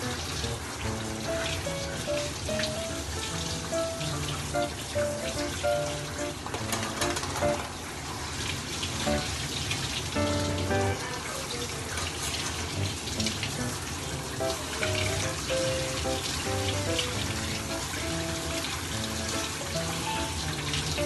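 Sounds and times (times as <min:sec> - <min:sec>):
shower water spraying onto dog: 0:00.0 - 0:21.0
background music: 0:10.2 - 0:11.0.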